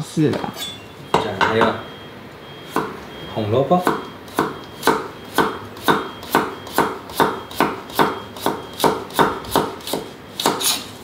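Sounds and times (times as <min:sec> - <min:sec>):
knife chopping carrot on board: 0:03.8 - 0:10.8.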